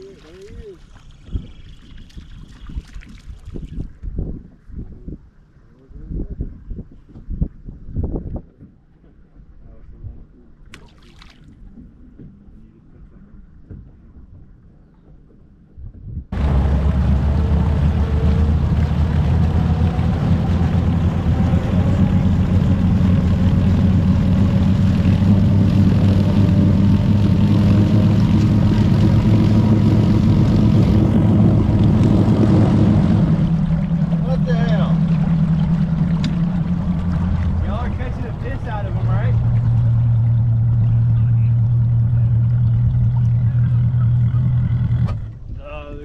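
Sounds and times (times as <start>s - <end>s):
outboard engine droning: 16.3s - 45.6s.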